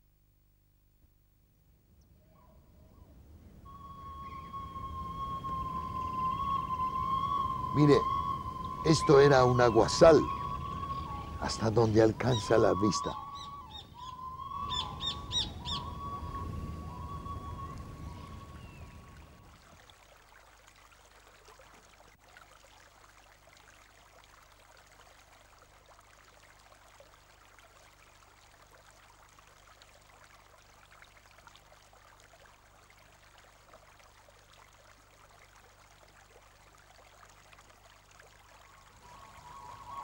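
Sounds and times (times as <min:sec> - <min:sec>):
low steady hum: 0:00.0 - 0:40.0.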